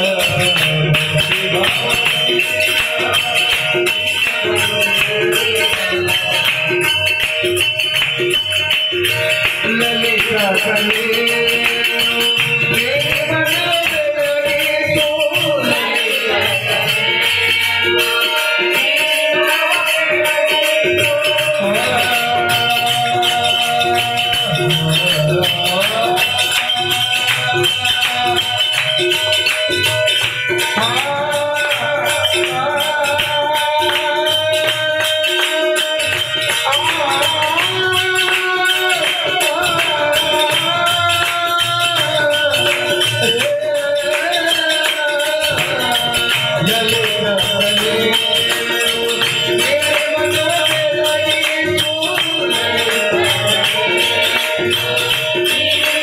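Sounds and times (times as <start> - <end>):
harmonium: 0.0 - 56.0
jingling percussion: 0.0 - 56.0
tabla playing: 0.0 - 56.0.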